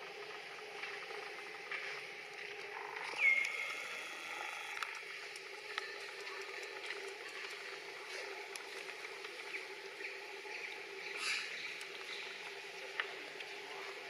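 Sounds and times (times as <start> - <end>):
outdoor background noise: 0.0 - 14.0
faint clicks: 4.4 - 9.6.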